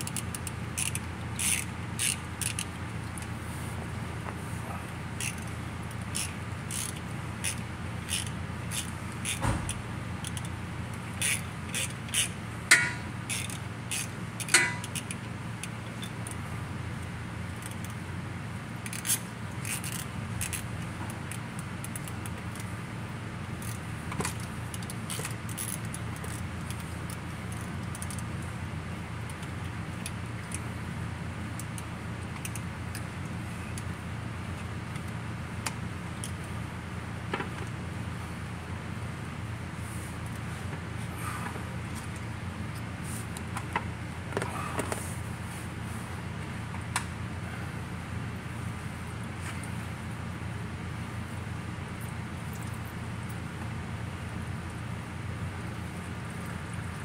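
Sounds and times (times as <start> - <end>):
ratchet clicking: 0.0 - 3.2, 5.2 - 10.5, 11.1 - 16.4, 17.6 - 18.0, 18.8 - 20.7, 23.6 - 28.3
steady low hum: 0.0 - 57.0
metal tools clinking: 12.7 - 13.5, 14.4 - 15.0.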